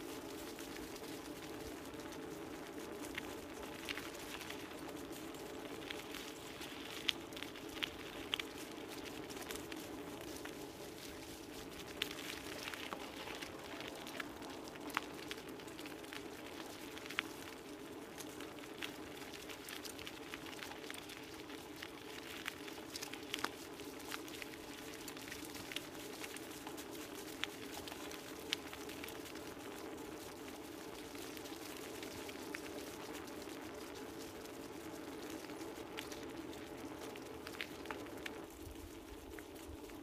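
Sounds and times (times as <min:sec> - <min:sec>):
tyres rolling on dirt trail: 0:00.0 - 0:40.0.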